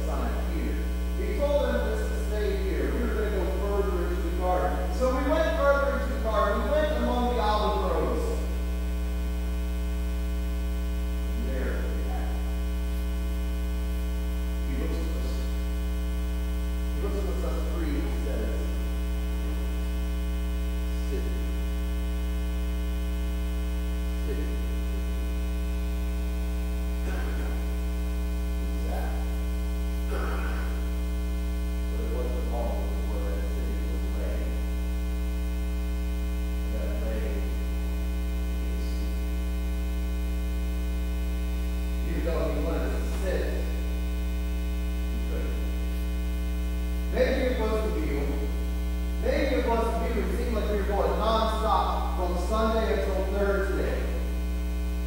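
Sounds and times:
man's voice: 0.0s - 8.5s, 11.4s - 12.6s, 14.6s - 15.5s, 17.0s - 18.8s, 27.0s - 27.7s, 31.9s - 34.6s, 36.7s - 37.5s, 42.0s - 43.8s, 47.1s - 48.5s, 49.2s - 54.2s
steady higher tones: 0.0s - 54.3s
electrical mains hum: 0.0s - 55.0s.

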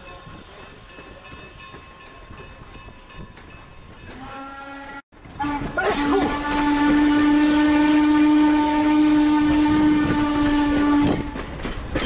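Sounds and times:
steam locomotive whistle blast: 4.1s - 11.4s.

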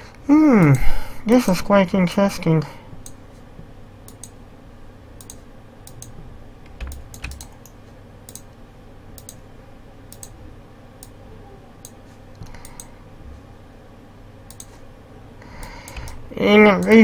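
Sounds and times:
low steady hum: 0.0s - 17.0s
mouse and keyboard clicks: 6.7s - 8.5s, 14.5s - 14.8s, 15.6s - 16.2s.

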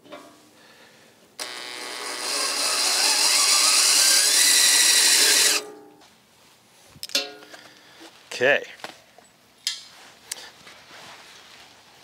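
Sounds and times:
drill driving screw into metal: 1.4s - 5.7s.

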